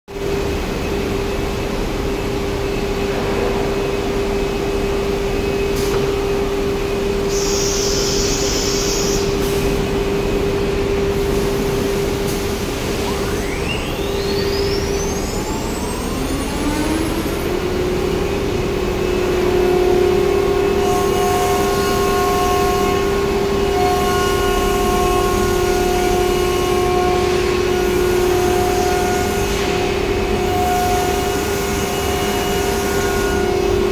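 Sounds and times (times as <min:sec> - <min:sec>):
machine hum: 0:00.1 - 0:33.9
router spindle whine: 0:06.2 - 0:29.7.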